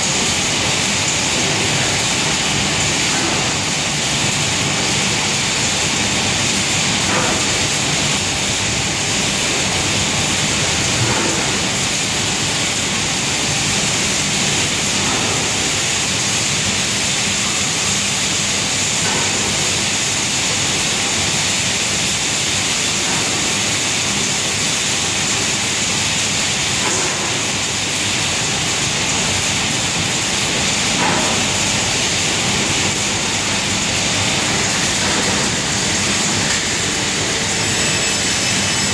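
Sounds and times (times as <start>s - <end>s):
dust extraction fans rushing: 0.0s - 38.9s.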